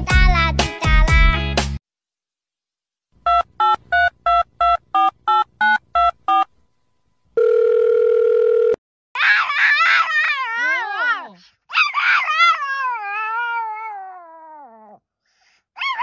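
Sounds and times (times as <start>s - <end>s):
phone keypad beeps: 3.3s - 6.5s
steady telephone tone: 7.4s - 8.8s
dog howling: 9.2s - 15.0s.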